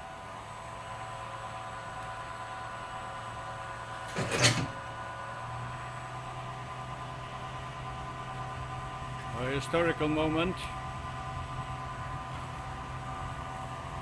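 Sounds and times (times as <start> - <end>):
machinery humming: 0.0 - 14.0
loud mechanical clunk: 4.0 - 4.8.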